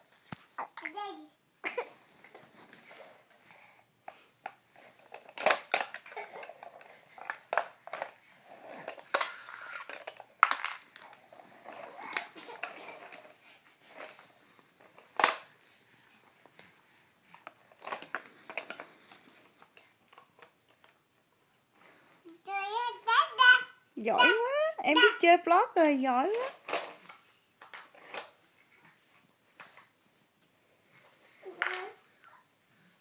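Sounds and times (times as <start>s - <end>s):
plastic toy blocks clacking: 5.1s - 13.3s.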